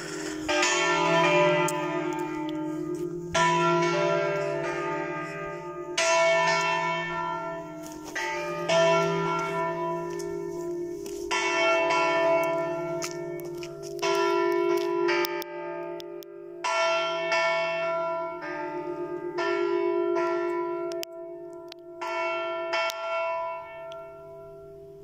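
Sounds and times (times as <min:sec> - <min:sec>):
church bells clanging: 0:00.0 - 0:25.0.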